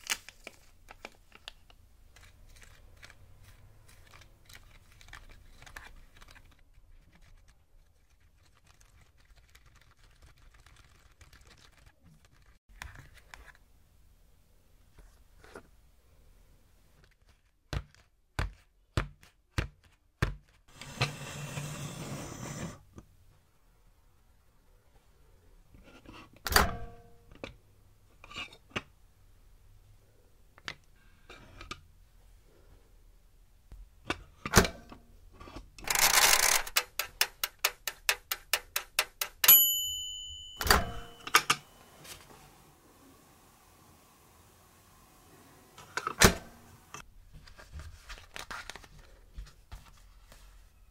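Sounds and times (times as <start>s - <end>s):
timer bell ringing: 39.5s - 41.9s.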